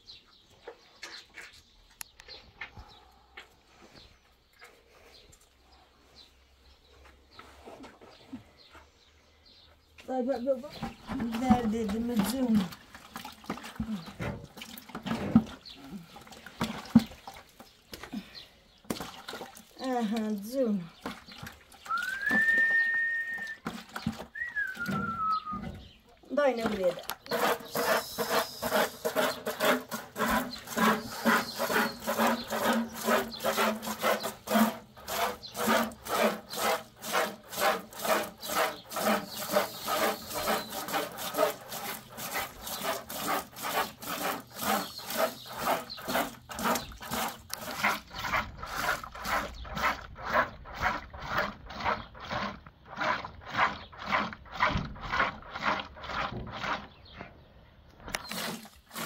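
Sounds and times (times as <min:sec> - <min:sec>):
milk squirting into plastic bucket: 0:10.8 - 0:25.4, 0:58.0 - 0:59.0.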